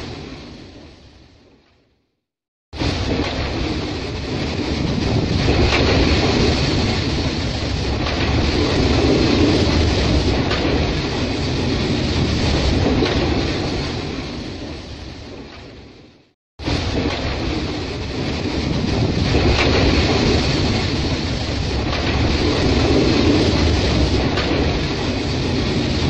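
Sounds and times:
freight train rumbling: 2.8 - 15.5, 16.6 - 26.0
wheels clacking over rail joints: 3.1 - 13.7.

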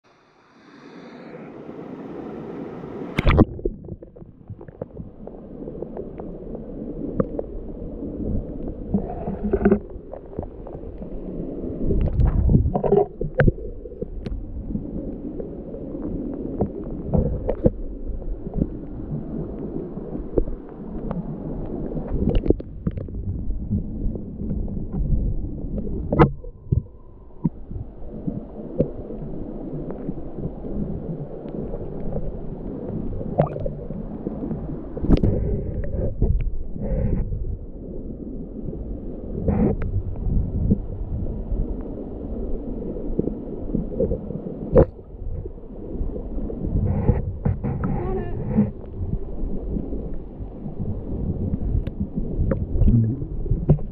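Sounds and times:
muffled underwater water rumble: 0.0 - 53.9
knocks and clicks underwater: 3.2 - 6.3, 7.1 - 7.5, 8.2 - 11.2, 11.8 - 15.2, 16.3 - 37.6, 39.4 - 41.2, 43.1 - 45.6, 46.7 - 53.9.

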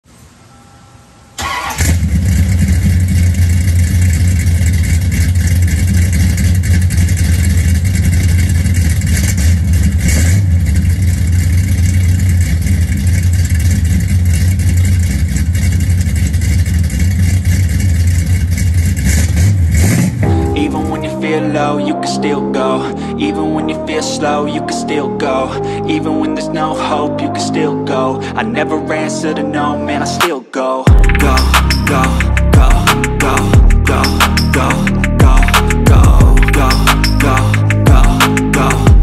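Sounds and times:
car engine starting and running: 1.4 - 28.6, 30.9 - 39.0.

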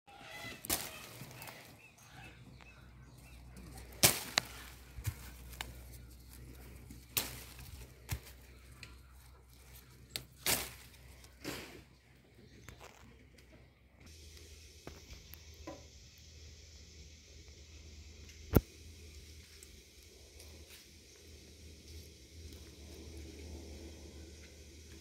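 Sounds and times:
leaves and twigs snapping: 0.4 - 1.7, 2.6 - 11.4, 18.5 - 18.7.

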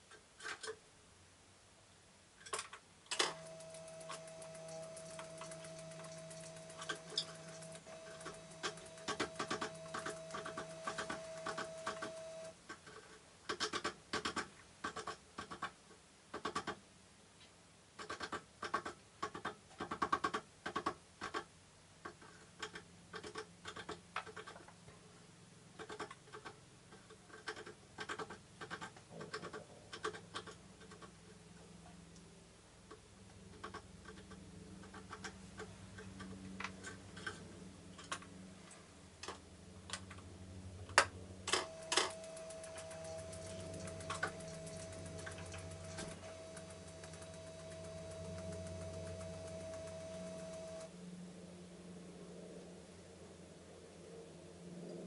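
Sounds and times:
steady beep tone: 3.5 - 12.5, 41.6 - 50.9
low hum: 31.4 - 55.0.

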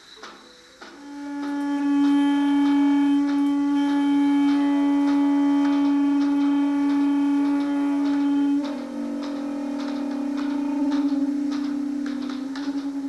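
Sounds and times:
wind instrument holding long note: 0.0 - 13.0
lower wavering note: 0.8 - 13.0.

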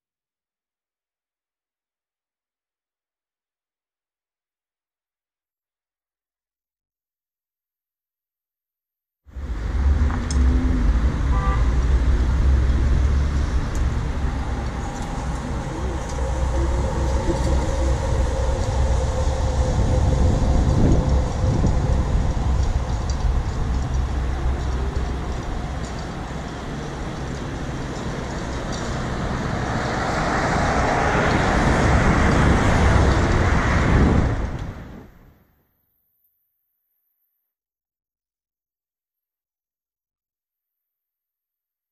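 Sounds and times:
road traffic rumble: 9.3 - 35.2.

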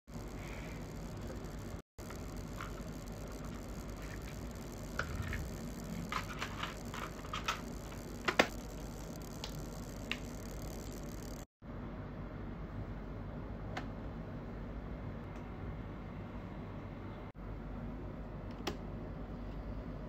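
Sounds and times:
steady low hum: 0.1 - 20.0.

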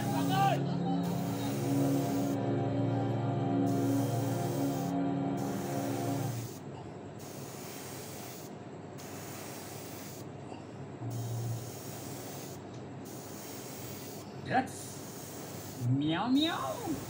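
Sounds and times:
airbrush spraying hiss: 0.0 - 2.4, 3.6 - 6.6, 7.2 - 10.3, 11.1 - 17.0
background music: 0.0 - 6.6.

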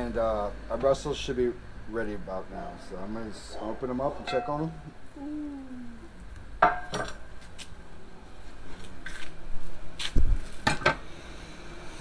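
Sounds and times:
cast iron cookware clanking: 4.2 - 5.0, 6.6 - 7.2.

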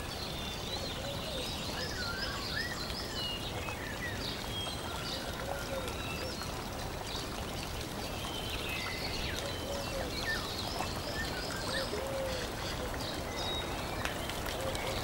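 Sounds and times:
running water stream: 0.0 - 15.0.

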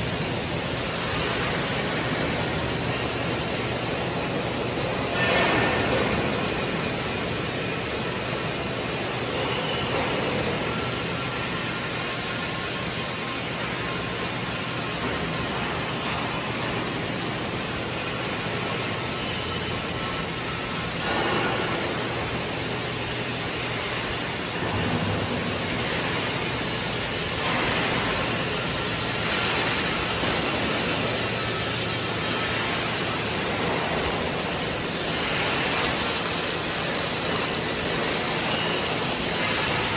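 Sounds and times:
factory machinery hiss: 0.0 - 39.9.

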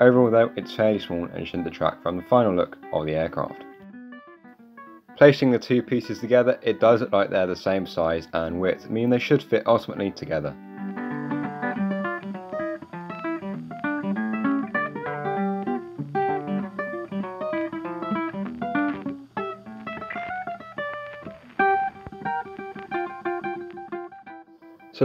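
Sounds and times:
plucked guitar runs: 0.0 - 25.0.

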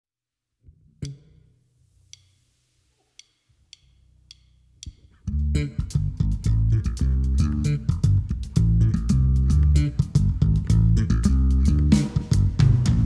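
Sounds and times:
electric bass guitar: 5.1 - 13.0.

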